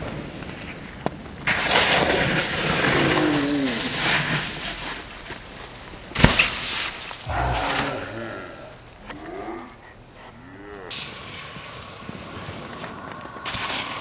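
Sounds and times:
snowboard scraping over snow: 0.0s - 5.4s, 10.9s - 14.0s
snow spraying: 1.5s - 8.7s, 10.9s - 14.0s
crash landing on snow: 6.1s - 7.2s.

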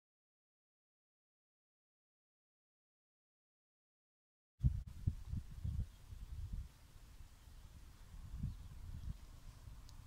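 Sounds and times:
wind buffeting microphone: 4.6s - 10.0s.

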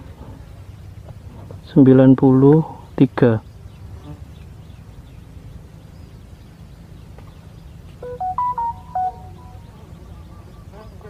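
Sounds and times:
short electronic melody: 8.0s - 9.7s.

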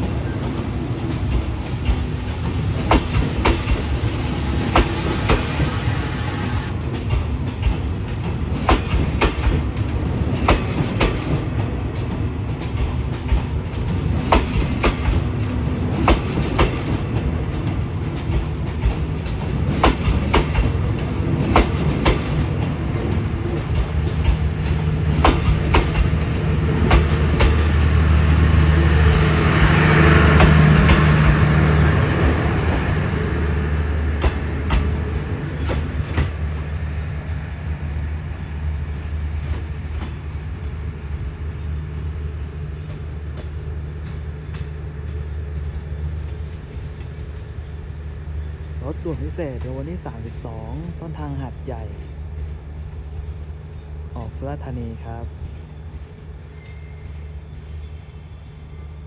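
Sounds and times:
train wheels clicking over rail joints: 0.0s - 27.9s, 30.3s - 32.9s, 34.1s - 37.1s, 39.3s - 41.4s, 42.0s - 47.8s
train rumble: 0.0s - 59.0s.

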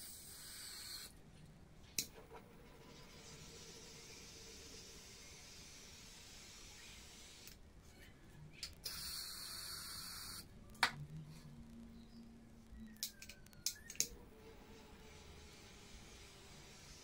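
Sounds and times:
handheld torch hissing: 0.0s - 1.2s, 3.2s - 7.6s, 8.8s - 10.4s.

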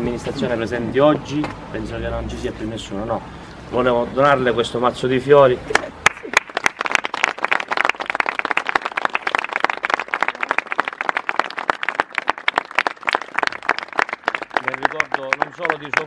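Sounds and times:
crowd applauding: 5.7s - 16.0s.

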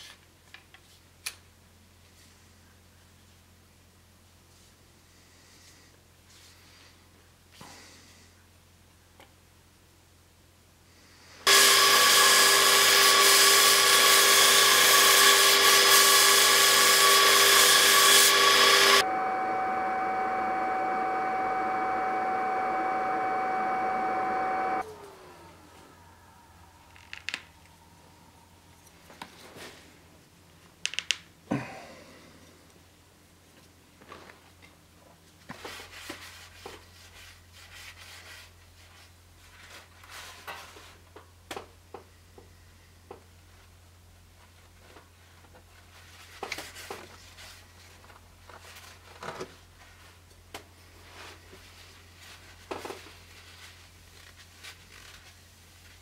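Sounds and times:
steady low hum: 18.2s - 30.6s
paper towel rustling on blade: 51.0s - 56.0s.

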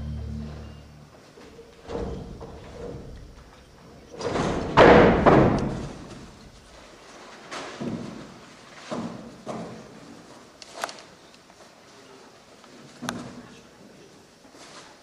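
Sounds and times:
thuds on stage boards: 4.2s - 6.3s.

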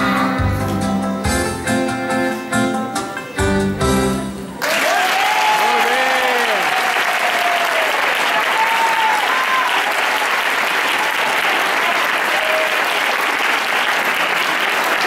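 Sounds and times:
crowd applauding: 4.6s - 15.0s.

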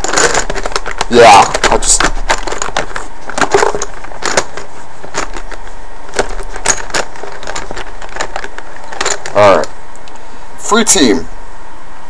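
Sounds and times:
paper slips rustling in plastic cup: 0.0s - 9.6s.

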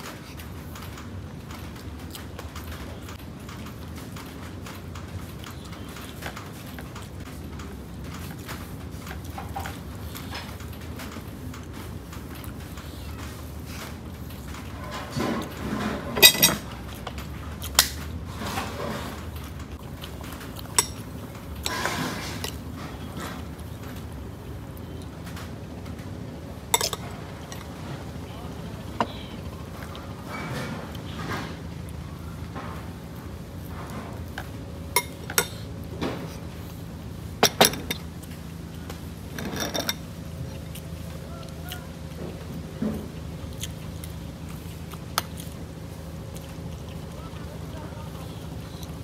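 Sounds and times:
chewing: 0.0s - 37.2s, 37.9s - 49.0s
steady low hum: 0.0s - 49.0s
handling dishes and food: 11.6s - 24.3s, 25.1s - 36.7s, 37.3s - 40.9s
tableware clinking: 15.4s - 16.7s, 26.7s - 27.7s, 34.9s - 35.6s, 37.4s - 38.1s, 39.3s - 40.0s
fingers working food on a plate: 26.6s - 49.0s.

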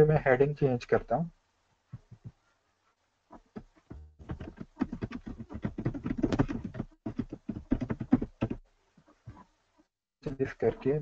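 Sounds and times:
typing on computer keyboard: 4.2s - 8.6s.

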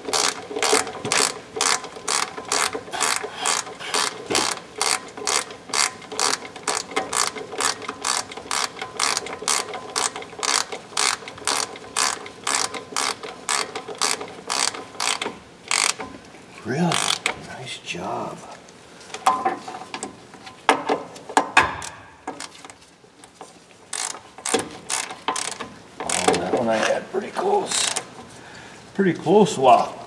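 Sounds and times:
ratchet wrench clicking: 0.1s - 16.0s, 16.9s - 17.3s, 23.9s - 26.6s, 27.7s - 28.1s.

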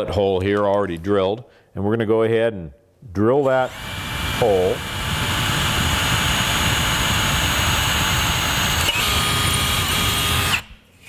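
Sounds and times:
cordless drill drilling metal: 3.4s - 10.8s.

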